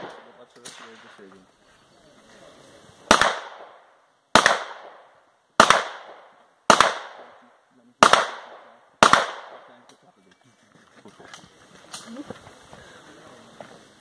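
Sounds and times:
pistol shots with echo: 0:00.0 - 0:01.2, 0:03.1 - 0:09.9.

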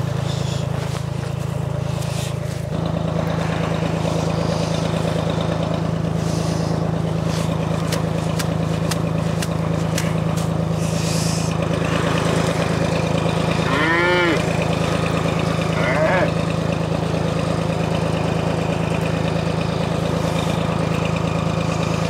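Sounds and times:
diesel engine running: 0:00.0 - 0:22.0
cow mooing: 0:13.5 - 0:14.6, 0:15.6 - 0:16.4.

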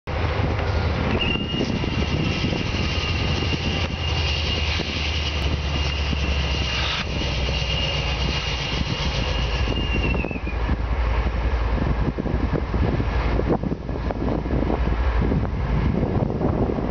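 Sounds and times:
locomotive engine rumble: 0:00.1 - 0:16.9
high squeal: 0:00.7 - 0:10.8.

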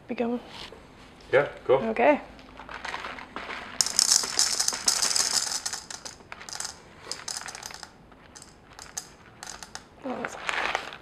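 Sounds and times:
coffee beans pouring into grinder: 0:03.8 - 0:11.0.

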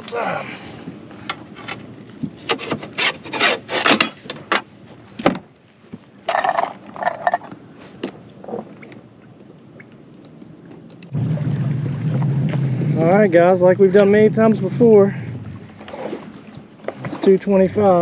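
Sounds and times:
gear rubbing and knocking on boat: 0:00.9 - 0:07.6, 0:10.7 - 0:18.0.

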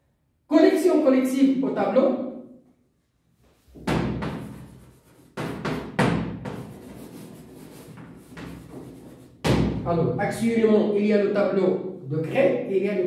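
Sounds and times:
chalk knocking on chalkboard: 0:03.7 - 0:09.7.

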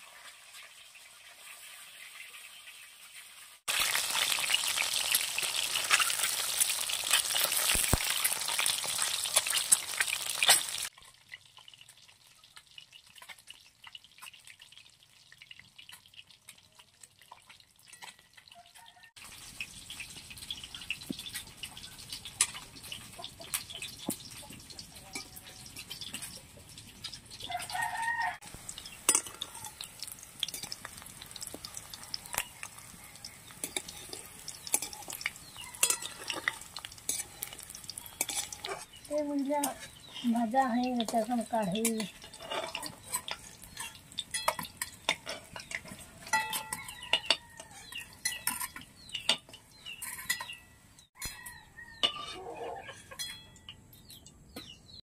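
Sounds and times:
eggs sizzling in oil: 0:00.0 - 0:55.0
spatula scraping and tapping pan: 0:17.4 - 0:27.8, 0:28.6 - 0:39.0, 0:39.6 - 0:54.8
chicken calling: 0:51.2 - 0:53.2.

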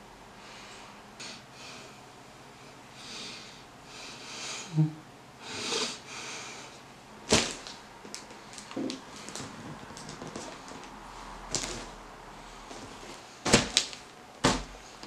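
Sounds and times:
person breathing through nose: 0:05.4 - 0:06.8.

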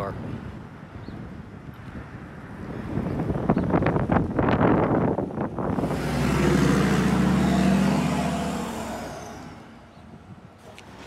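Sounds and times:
pickup truck driving past: 0:05.6 - 0:11.0.

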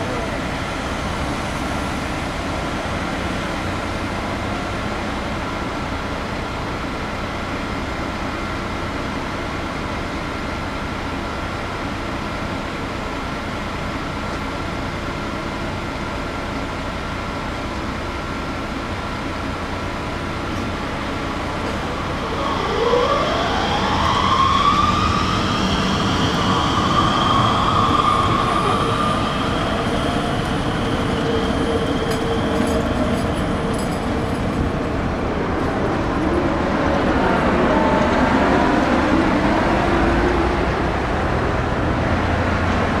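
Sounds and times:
traffic: 0:00.0 - 0:43.0
tram rumble: 0:00.0 - 0:43.0
tram wheels squealing on rails: 0:20.6 - 0:40.6.

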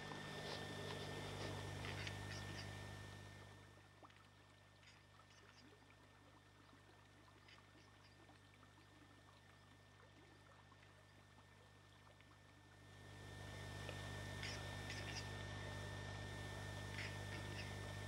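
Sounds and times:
faint ticks: 0:00.0 - 0:02.8
steady low hum: 0:00.0 - 0:18.0.

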